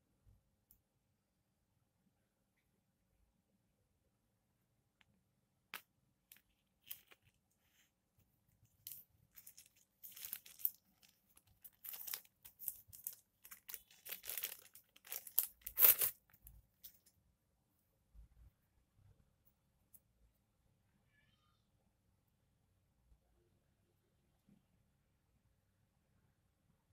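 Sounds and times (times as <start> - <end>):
packaging crinkling and tearing: 8.9 - 16.2.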